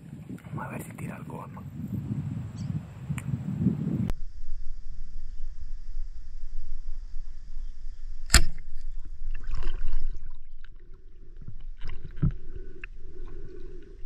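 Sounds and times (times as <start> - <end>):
sharp snap: 8.2 - 8.9
water splashing in a stream: 8.3 - 12.6.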